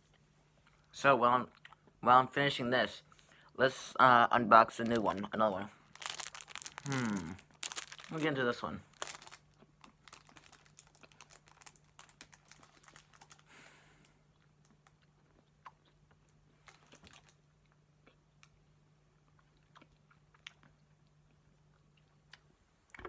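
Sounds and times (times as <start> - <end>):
faint low hum: 0.0 - 23.0
chewing taffy: 4.8 - 22.5.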